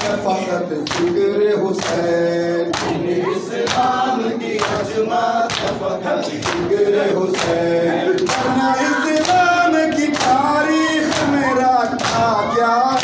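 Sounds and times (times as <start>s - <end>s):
men chanting in chorus: 0.0s - 13.0s.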